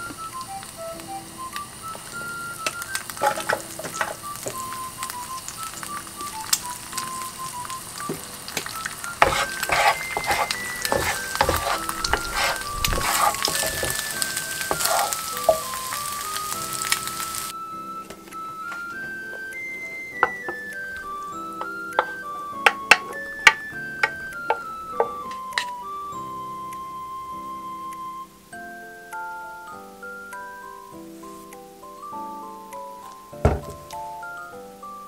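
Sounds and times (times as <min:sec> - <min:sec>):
eggs sizzling in oil: 0:00.0 - 0:35.0
spatula scraping frying pan: 0:03.1 - 0:04.2, 0:09.2 - 0:15.9.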